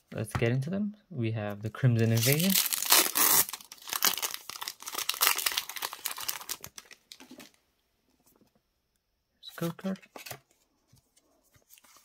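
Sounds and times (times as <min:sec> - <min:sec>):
foil wrapper crinkling and tearing: 0:02.0 - 0:07.6.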